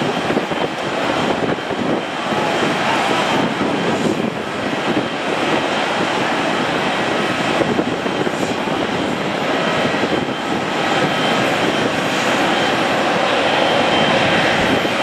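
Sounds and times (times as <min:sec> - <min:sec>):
jet engine rumble: 0:00.0 - 0:15.0.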